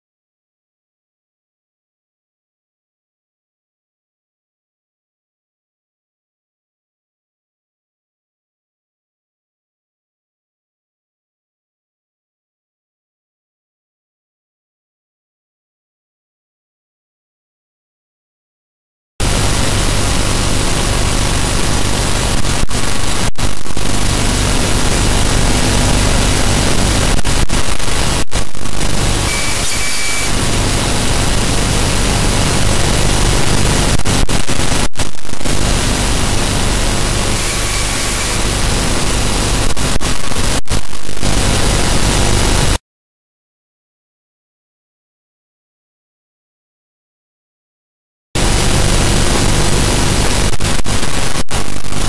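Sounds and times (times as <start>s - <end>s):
loud static hiss: 19.2s - 42.8s, 48.4s - 52.0s.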